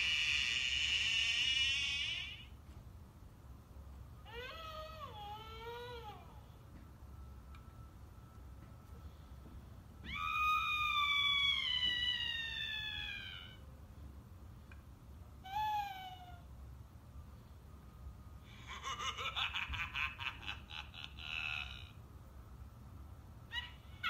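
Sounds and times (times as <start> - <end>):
wailing cry: 0.0 - 2.6, 4.2 - 6.5, 10.0 - 13.7, 15.4 - 16.5, 18.6 - 22.0, 23.5 - 24.0.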